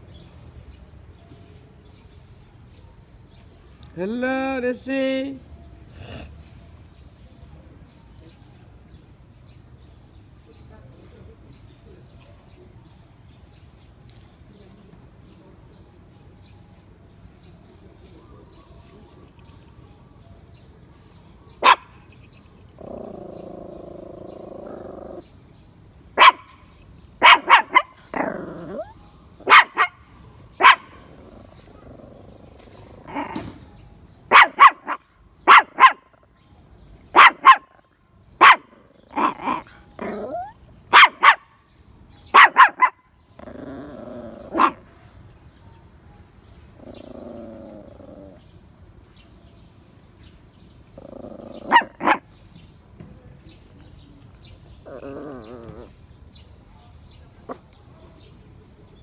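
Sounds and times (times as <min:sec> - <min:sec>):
dog barking: 0:21.6 - 0:21.9, 0:26.2 - 0:26.6, 0:27.2 - 0:28.0, 0:29.4 - 0:30.0, 0:30.6 - 0:31.0, 0:34.3 - 0:36.1, 0:37.1 - 0:37.8, 0:38.4 - 0:40.2, 0:40.9 - 0:41.5, 0:42.3 - 0:43.0, 0:44.5 - 0:44.9, 0:51.6 - 0:52.3.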